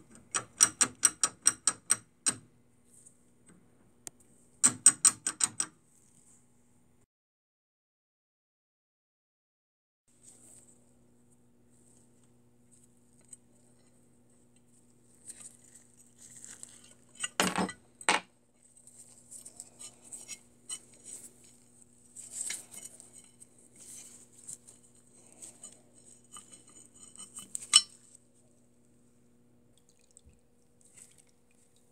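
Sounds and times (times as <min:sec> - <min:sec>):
pipe wrench parts clinking: 0:27.6 - 0:28.0.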